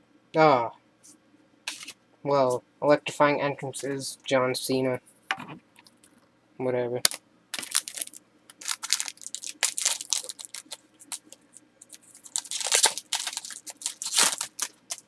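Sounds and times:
card wrapper crinkling and rustling: 0:07.1 - 0:15.0.

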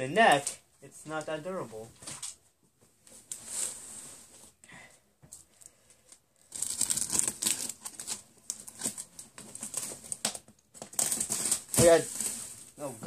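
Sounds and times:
plastic bags crinkling: 0:06.4 - 0:12.4.

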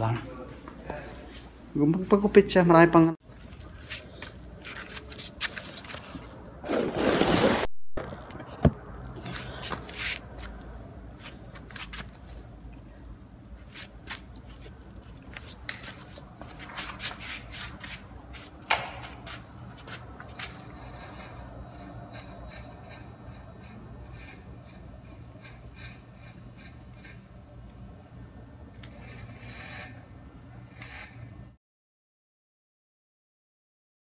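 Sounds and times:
handling rustling and scraping: 0:03.3 - 0:07.7, 0:09.2 - 0:12.5, 0:13.5 - 0:26.0.

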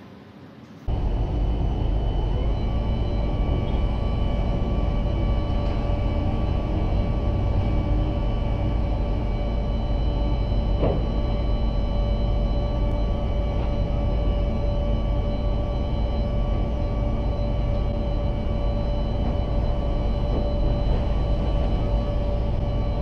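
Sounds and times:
high mechanical whine: 0:00.4 - 0:23.0
crane hoist machinery rumbling: 0:00.9 - 0:23.0.

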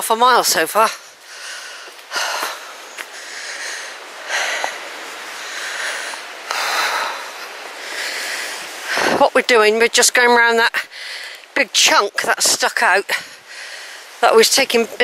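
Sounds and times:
person breathing while walking: 0:01.0 - 0:09.2, 0:10.9 - 0:11.5, 0:13.1 - 0:14.2.

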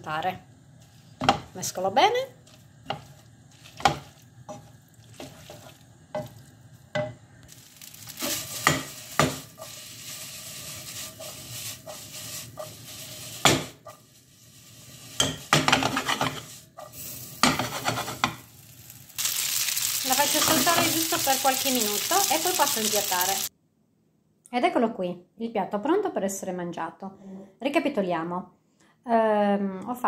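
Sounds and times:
pasta sizzling: 0:00.8 - 0:23.5
utensil scraping a pan: 0:02.4 - 0:06.4, 0:08.0 - 0:18.5.

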